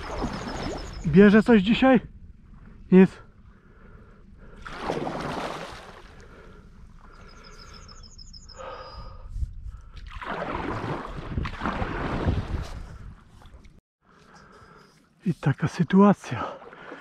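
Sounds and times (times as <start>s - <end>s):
wind: 0.0s - 17.0s.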